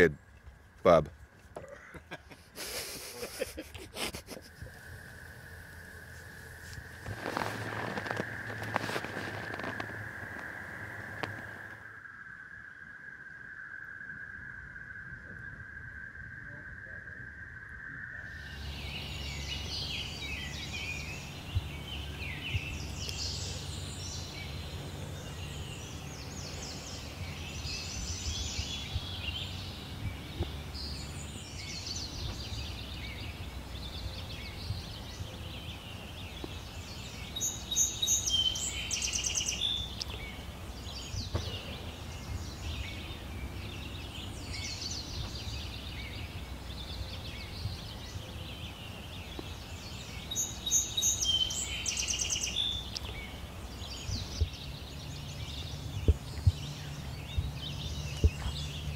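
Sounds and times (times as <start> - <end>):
steady low rumble: 3.3 - 11.8, 18.1 - 37.4, 52.9 - 58.9
songbirds singing: 4.5 - 11.8, 17.6 - 58.9.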